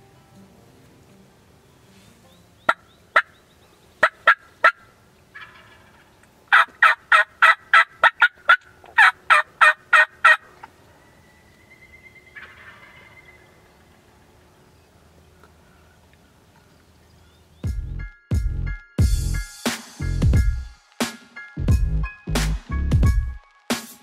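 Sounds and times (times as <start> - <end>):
turkey yelping: 2.7 - 3.4, 4.0 - 10.8, 12.2 - 13.9.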